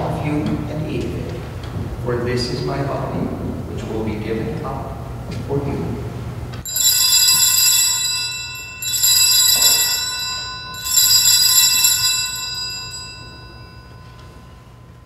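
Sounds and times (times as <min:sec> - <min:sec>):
altar bells ringing: 0:06.6 - 0:15.0.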